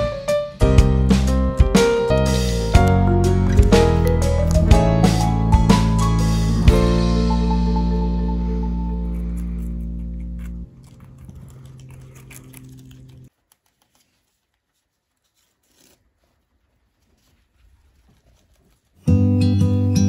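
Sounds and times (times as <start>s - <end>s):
guinea pigs chewing: 8.3s - 19.1s.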